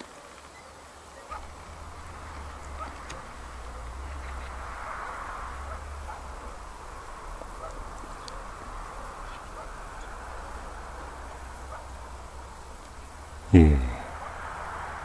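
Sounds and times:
faint ticks: 1.3s - 13.1s
low hum: 1.3s - 15.0s.

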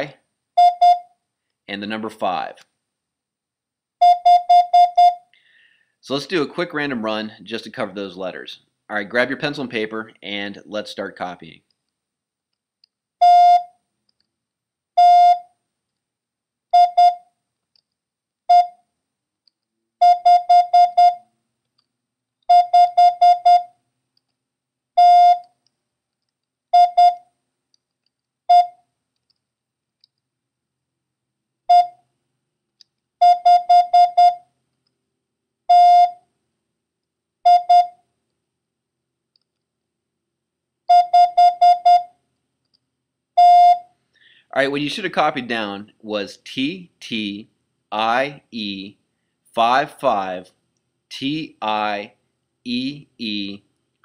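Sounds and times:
morse code beeps: 0.6s - 1.1s, 4.0s - 5.2s, 13.2s - 13.7s, 15.0s - 15.4s, 16.8s - 17.2s, 18.5s - 18.8s, 20.0s - 21.2s, 22.5s - 23.7s, 25.0s - 25.4s, 26.8s - 27.2s, 28.5s - 28.8s, 31.7s - 32.0s, 33.2s - 34.4s, 35.7s - 36.2s, 37.5s - 38.0s, 40.9s - 42.1s, 43.4s - 43.8s.

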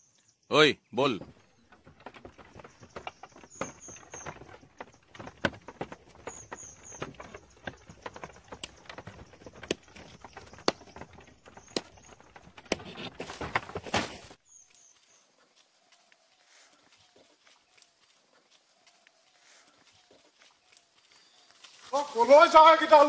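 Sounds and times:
wooden knocks: 1.0s - 14.1s
footsteps on leafy ground: 12.9s - 23.0s.

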